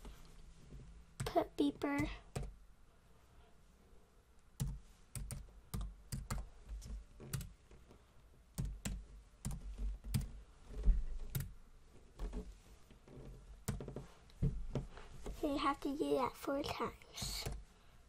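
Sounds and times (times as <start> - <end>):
computer keyboard typing: 2.0 - 2.6, 4.6 - 7.5, 8.6 - 10.4, 11.3 - 11.5.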